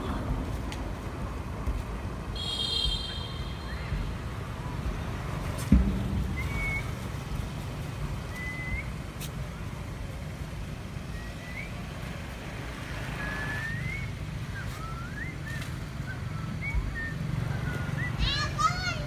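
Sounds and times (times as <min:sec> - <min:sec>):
low outdoor rumble: 0:03.2 - 0:13.0
thump: 0:05.6 - 0:06.8.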